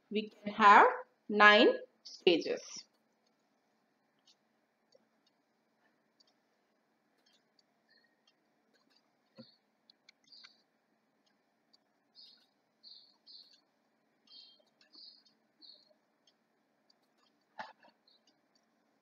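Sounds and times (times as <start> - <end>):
computer mouse clicks: 7.2 - 13.7
high bird chirps: 10.2 - 10.6, 12.2 - 16.0.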